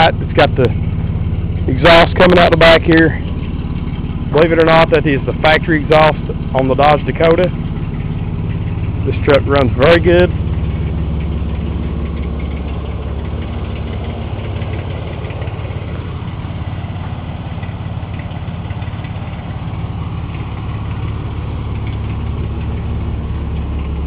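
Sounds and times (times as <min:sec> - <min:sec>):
pickup engine idling: 0:00.0 - 0:24.0.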